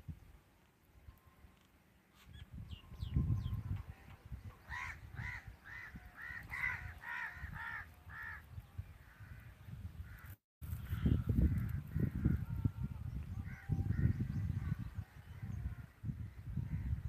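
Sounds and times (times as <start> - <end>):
crow cawing: 4.7 - 9.4.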